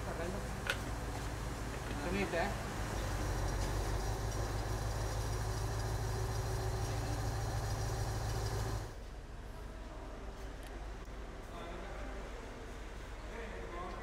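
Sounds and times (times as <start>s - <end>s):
crane engine humming: 0.0s - 9.0s.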